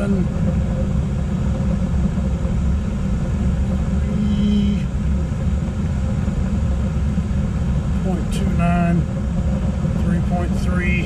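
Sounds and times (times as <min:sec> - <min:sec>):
heating unit low rumble: 0:00.0 - 0:11.0.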